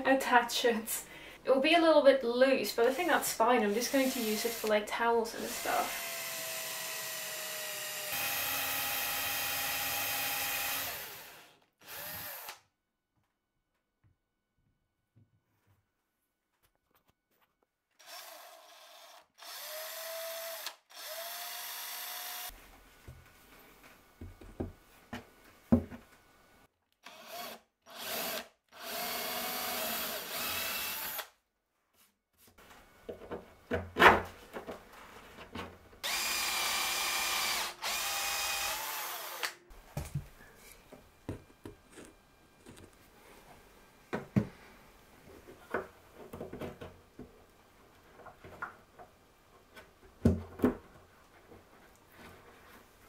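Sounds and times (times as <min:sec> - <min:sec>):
cordless drill whine: 0:05.5 - 0:12.6, 0:18.0 - 0:22.5, 0:27.1 - 0:31.3, 0:36.0 - 0:39.6.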